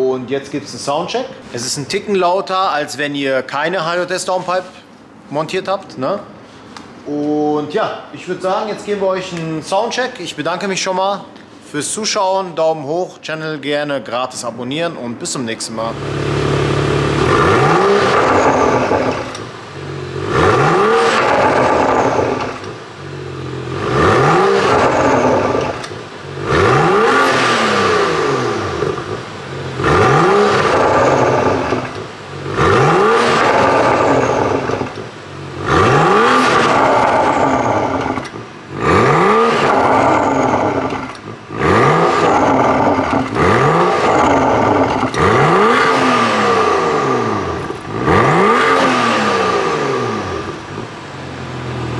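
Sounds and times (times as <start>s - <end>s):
car engine revving: 15.7s - 51.9s.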